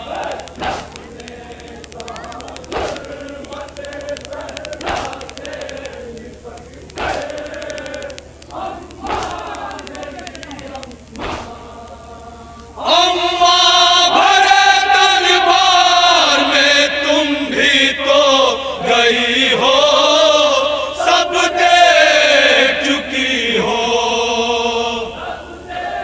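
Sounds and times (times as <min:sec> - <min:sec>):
men chanting a lament over loudspeaker: 0:11.3 - 0:26.0.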